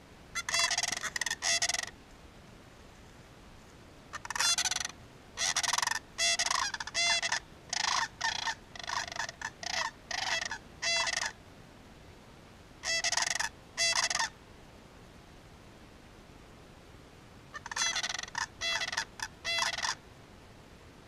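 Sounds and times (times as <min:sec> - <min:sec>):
cranes calling rattling calls: 0:00.4 - 0:02.0, 0:04.1 - 0:11.4, 0:12.8 - 0:14.3, 0:17.5 - 0:20.0.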